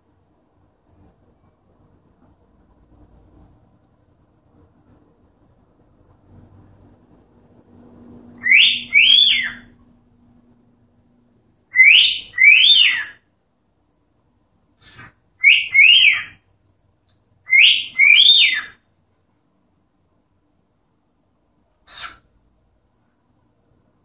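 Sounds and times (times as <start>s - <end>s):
cockatiel whistling: 8.4s - 9.8s, 11.7s - 13.2s, 14.8s - 16.4s, 17.5s - 18.8s.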